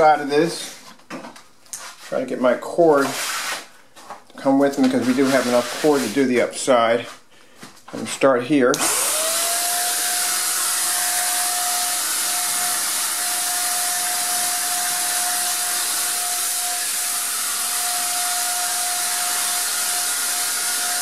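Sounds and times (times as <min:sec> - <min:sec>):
paint sprayer motor whine: 0:08.7 - 0:21.0.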